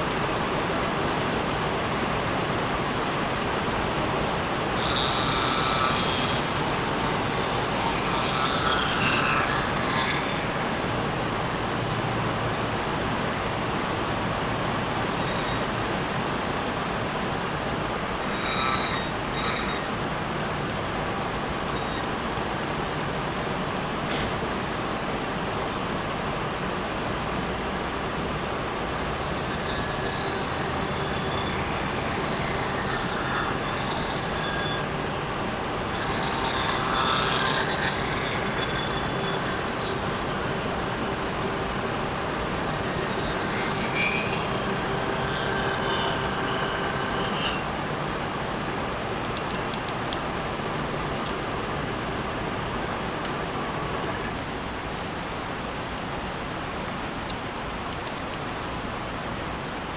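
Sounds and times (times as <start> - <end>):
milling machine cutting metal: 4.6 - 12.5, 14.0 - 26.2, 27.3 - 47.8
sharp metal scrapes: 4.7 - 12.3, 14.9 - 15.9, 18.0 - 26.1, 27.6 - 35.0, 35.8 - 47.8
high-pitched squealing from cutting: 4.8 - 11.1, 14.9 - 15.9, 18.1 - 26.2, 27.5 - 35.0, 35.9 - 47.8.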